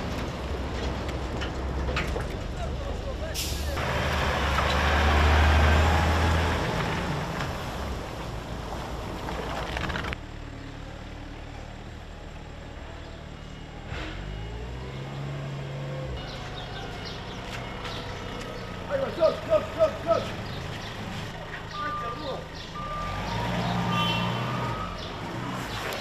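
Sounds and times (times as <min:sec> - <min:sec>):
heavy truck driving past: 0:00.0 - 0:26.0
forklift engine running: 0:09.7 - 0:26.0.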